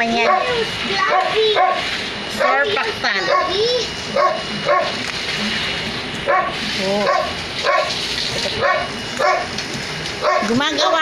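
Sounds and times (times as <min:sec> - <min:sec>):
dog barking: 0:00.1 - 0:05.0, 0:06.2 - 0:09.6, 0:10.2 - 0:10.6.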